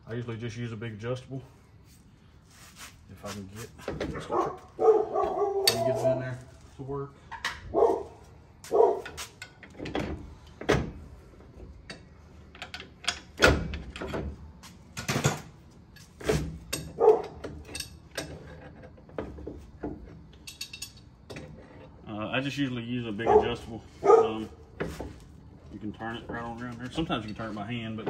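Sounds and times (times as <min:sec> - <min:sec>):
tools knocking on metal parts: 0:19.2 - 0:21.5.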